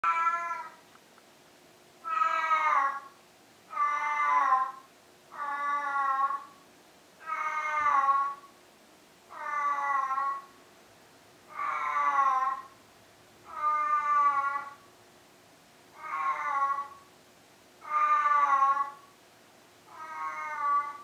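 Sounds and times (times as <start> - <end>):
cat wailing: 0.0 - 0.8, 2.0 - 3.1, 3.7 - 6.6, 7.2 - 8.5, 9.3 - 10.6, 11.5 - 12.7, 13.4 - 14.8, 16.0 - 17.1, 17.8 - 19.0, 19.9 - 21.0.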